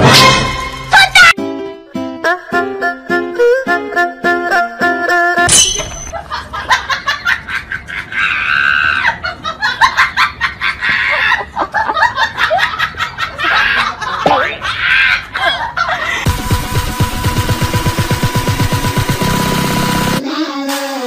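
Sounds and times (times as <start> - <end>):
plucked-string background music: 0.0 - 5.7
people laughing: 6.1 - 16.3
people squealing: 8.1 - 9.2.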